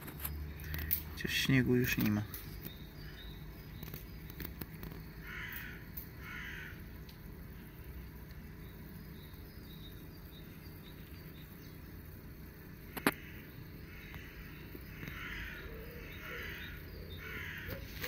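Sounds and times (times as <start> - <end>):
low outdoor hum: 0.0 - 18.0
crows cawing: 5.2 - 6.9, 12.9 - 18.0.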